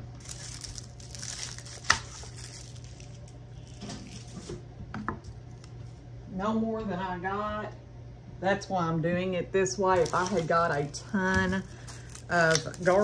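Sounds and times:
dry garlic stalks rustling: 0.0s - 4.5s, 9.9s - 13.0s.

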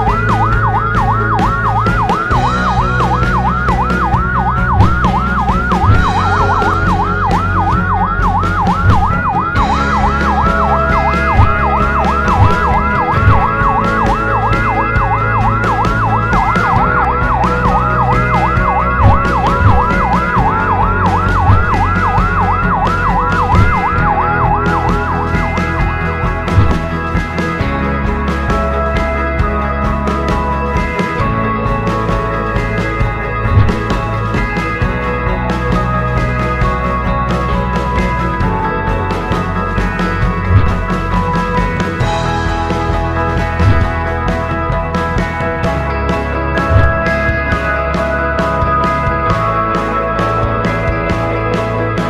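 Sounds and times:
electronic yelp siren: 0.0s - 29.6s, 33.5s - 44.4s
background music with low beat: 0.0s - 52.0s.

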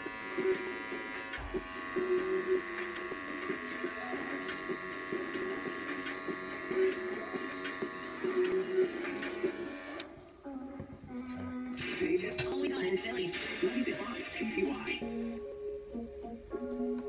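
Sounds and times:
electric hair trimmer buzzing: 0.0s - 10.2s.

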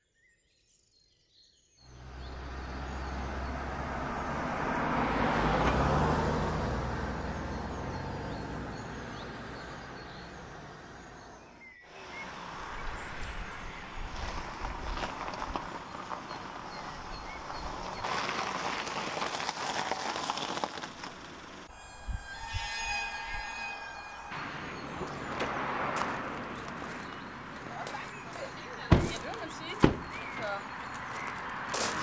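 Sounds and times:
car moving slowly: 1.8s - 22.3s, 23.5s - 32.0s
birds chirping: 1.8s - 32.0s
car passing: 1.9s - 32.0s.

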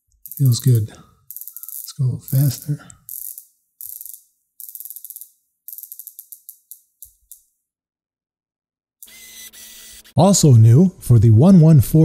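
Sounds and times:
watch bezel ratchet clicks: 0.1s - 7.5s.

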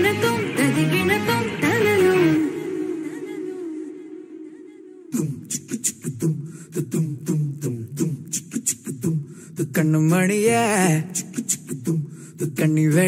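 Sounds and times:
person singing: 0.0s - 13.0s
vocal percussion beats: 5.1s - 13.0s.

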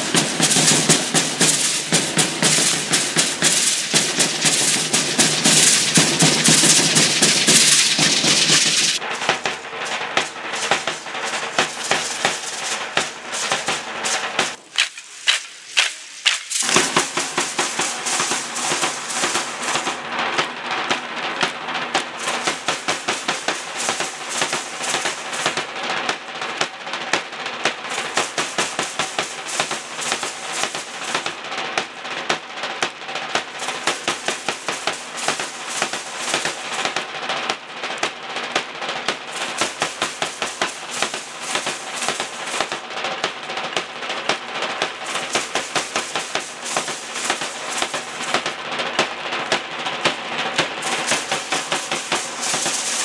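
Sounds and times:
drums beating fast rhythm: 0.0s - 53.0s
percussion rattling and clacking: 0.0s - 53.0s.

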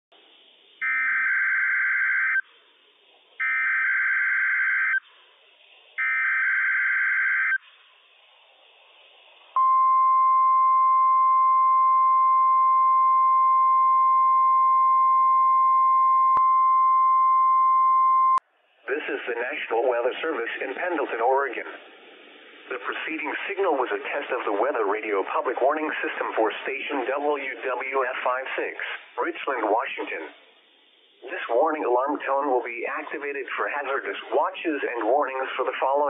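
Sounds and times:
steady warning alarm tone: 0.8s - 2.4s, 3.4s - 5.0s, 6.0s - 7.6s.

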